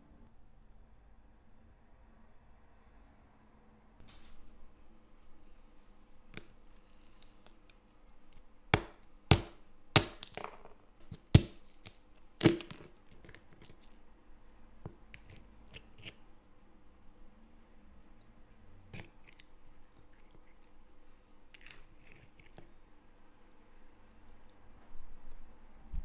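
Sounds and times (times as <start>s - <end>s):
caramelized topping cracking: 6.4s - 14.0s.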